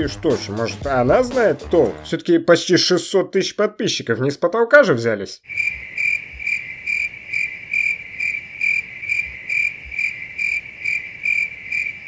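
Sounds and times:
cricket chirping: 5.5s - 12.0s.

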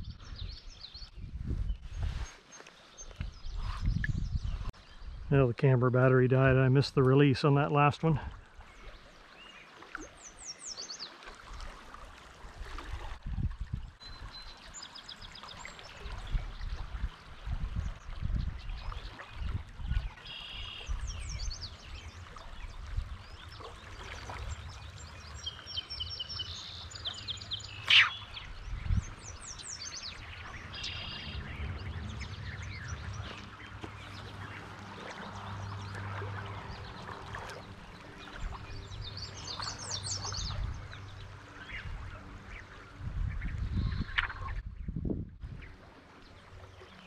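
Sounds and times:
shallow creek flowing: 0.0s - 47.0s
birds chirping: 18.6s - 47.0s
low rumble: 28.4s - 39.8s.

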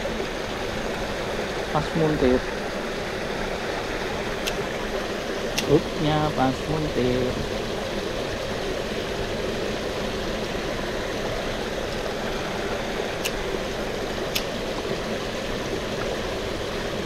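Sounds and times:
stream water rushing: 0.0s - 17.0s
sharp clicks: 14.3s - 14.5s.

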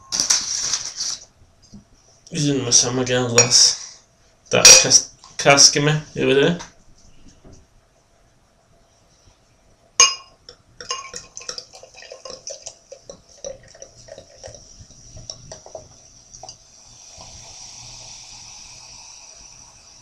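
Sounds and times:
cider glugging into glass: 10.0s - 14.6s.

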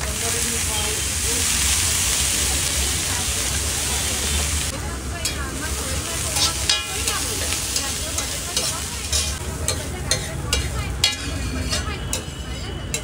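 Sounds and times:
food sizzling on griddle: 0.0s - 13.0s
metal spatula scraping griddle: 6.4s - 13.0s.

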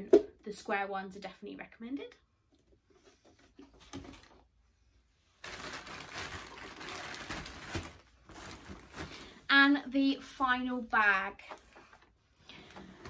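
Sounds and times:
shopping bag rustling: 5.4s - 9.4s.

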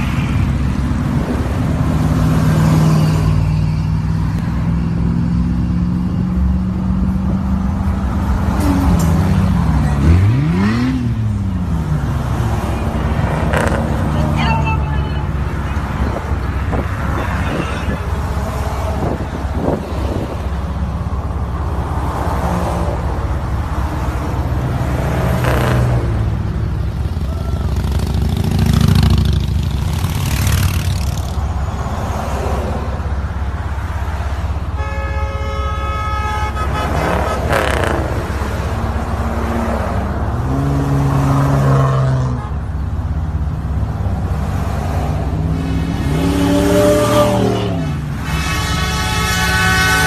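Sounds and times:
vehicle engines rumbling past: 0.0s - 34.8s, 36.5s - 50.0s
car horn: 13.5s - 15.8s, 17.0s - 18.4s, 34.5s - 38.1s, 46.1s - 50.0s.

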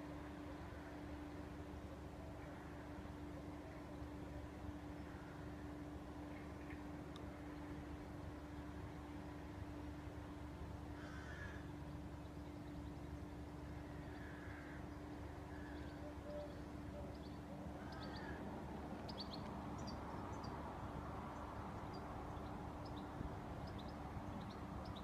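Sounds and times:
steady low hum: 0.0s - 25.0s
birds calling: 9.8s - 25.0s.

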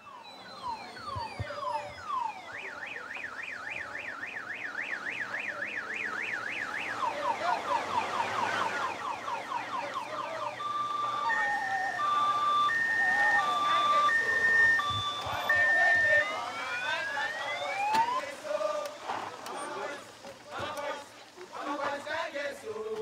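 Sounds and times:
electronic emergency siren: 0.0s - 18.4s.

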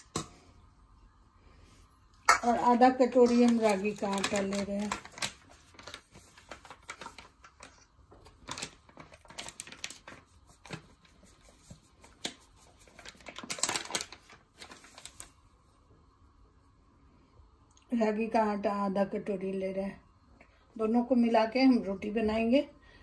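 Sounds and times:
plastic packet rustling: 2.4s - 15.4s.

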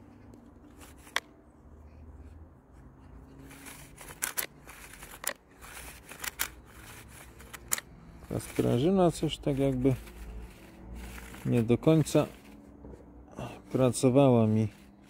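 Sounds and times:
plastic clicks and rattles: 3.6s - 7.9s.

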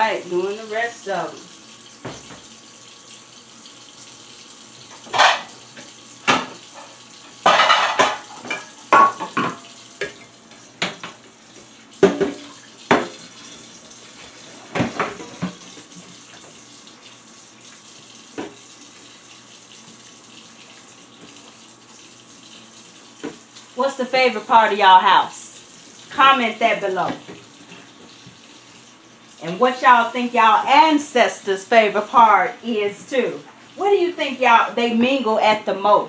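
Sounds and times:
tap running into a sink: 1.9s - 2.6s, 4.8s - 13.6s, 14.7s - 21.6s, 22.5s - 23.7s
dishware clattering against sink: 5.0s - 5.6s, 6.2s - 10.2s, 12.0s - 13.2s, 14.7s - 15.6s.

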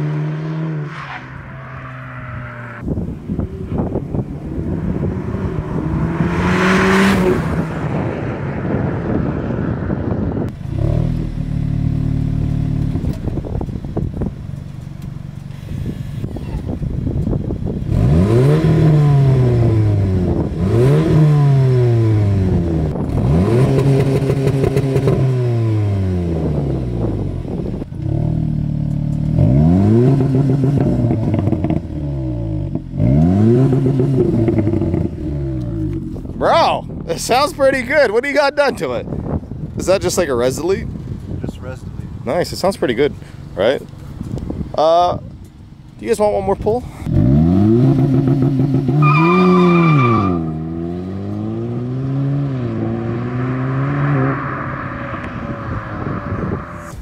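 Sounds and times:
car engine revving: 0.0s - 14.3s, 17.8s - 38.6s, 47.0s - 57.0s.

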